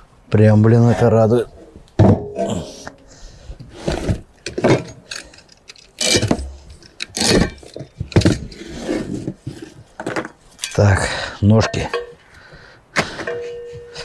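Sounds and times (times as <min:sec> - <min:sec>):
metal grill parts clanking: 0:02.0 - 0:03.0, 0:13.2 - 0:14.0.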